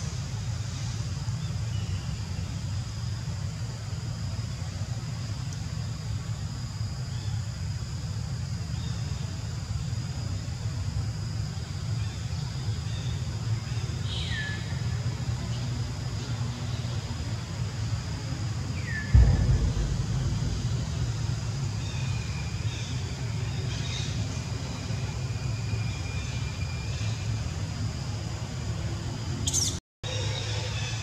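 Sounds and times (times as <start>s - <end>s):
brief low thump: 19.1s - 22.9s
steady low rumble: 19.1s - 23.7s.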